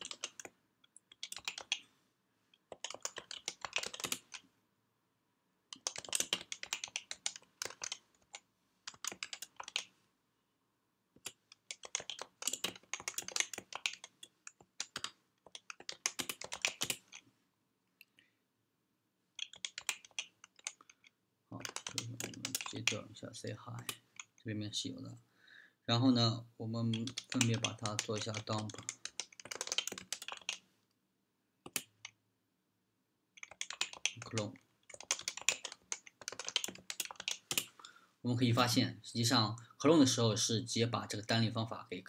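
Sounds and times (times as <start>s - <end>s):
typing on computer keyboard: 0.0s - 1.8s, 2.7s - 4.5s, 5.7s - 9.9s, 11.2s - 17.2s, 19.4s - 23.0s, 26.9s - 30.7s, 31.6s - 32.2s, 33.4s - 37.8s.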